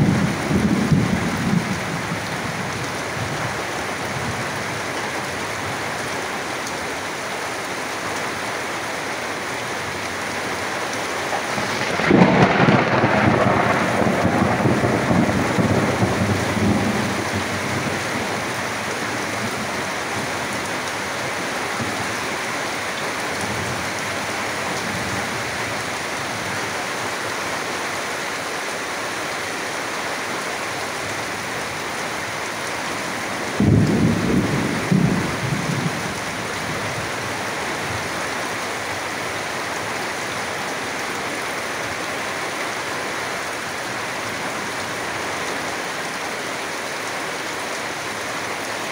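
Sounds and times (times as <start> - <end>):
thunder clap and rumble: 0.0 - 2.6, 11.3 - 18.5, 33.4 - 36.9
heavy rain on tin roofs: 0.0 - 48.9.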